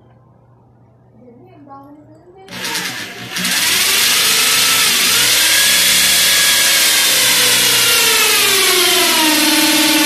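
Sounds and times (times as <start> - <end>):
electric drill boring into wood: 2.5 - 10.0.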